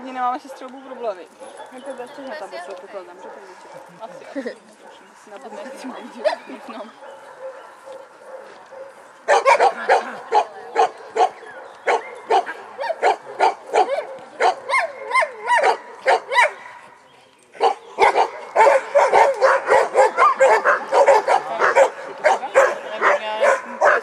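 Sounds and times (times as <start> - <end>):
dog barking: 0.4 - 2.0, 3.0 - 4.2, 7.0 - 16.9, 17.6 - 24.0.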